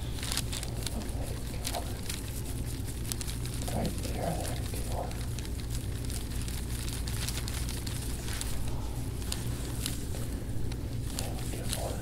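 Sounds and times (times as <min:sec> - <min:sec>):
faint crackles: 0:00.0 - 0:12.0
hands kneading skin: 0:00.0 - 0:12.0
skin rubbing: 0:00.0 - 0:12.0
steady low hum: 0:00.0 - 0:12.0.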